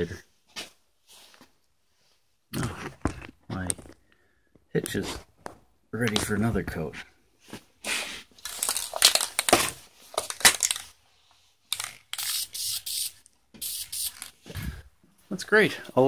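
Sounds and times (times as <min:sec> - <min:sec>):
spray paint can hissing: 0:11.7 - 0:14.3.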